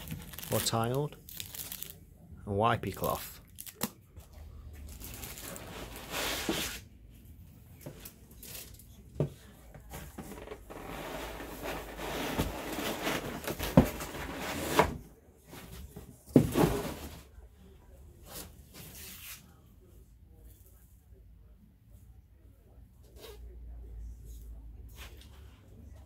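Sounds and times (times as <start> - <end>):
foam and cardboard scraping: 5.5 - 6.8, 9.9 - 17.3.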